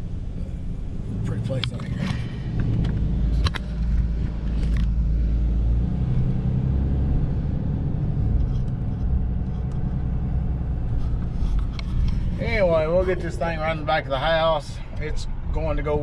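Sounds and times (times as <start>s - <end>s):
truck engine and tyres rumbling: 0.0s - 16.0s.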